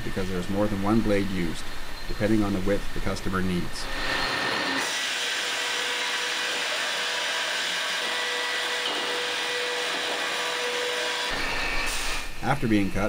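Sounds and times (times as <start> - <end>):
faint constant hum: 0.0 - 4.3.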